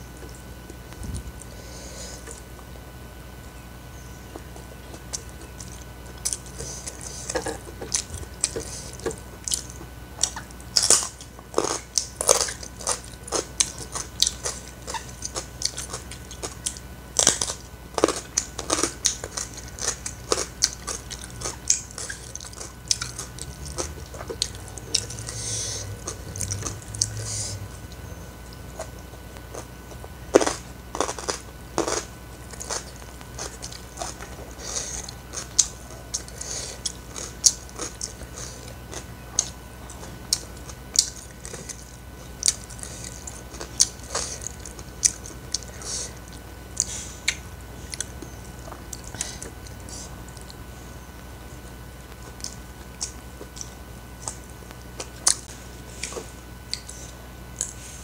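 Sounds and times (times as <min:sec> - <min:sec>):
brief low hum: 0:00.0 - 0:10.0, 0:23.2 - 0:30.9
crunchy bites and chewing: 0:04.2 - 0:58.0.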